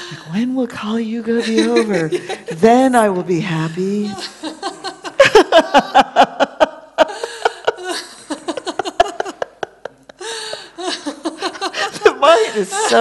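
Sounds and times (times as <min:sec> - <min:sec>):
women laughing: 0:01.4 - 0:02.8, 0:04.1 - 0:13.0.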